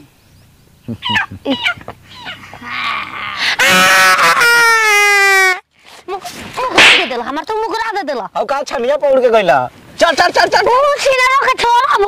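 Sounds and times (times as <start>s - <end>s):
loud wailing cry: 1.5s - 5.6s.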